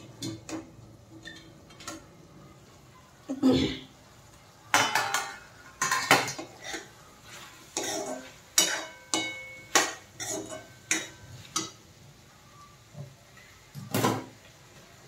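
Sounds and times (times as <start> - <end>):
steel spoon scraping pan: 4.9 - 11.7.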